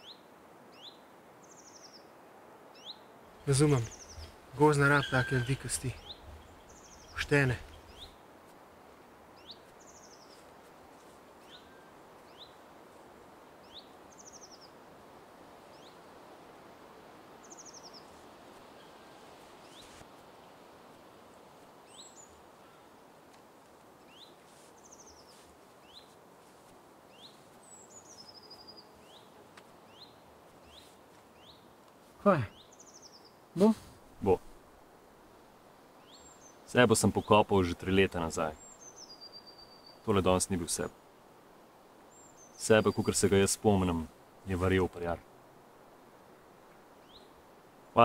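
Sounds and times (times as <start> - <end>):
faint birdsong chirps: 0.0 - 48.0
outdoor background hiss: 0.0 - 48.0.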